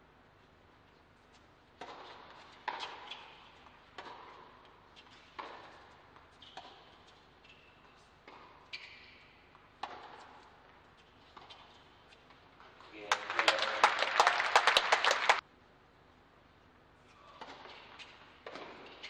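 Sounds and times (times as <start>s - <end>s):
racquets striking tennis ball: 1.8s - 3.3s, 3.9s - 4.7s, 8.2s - 10.8s.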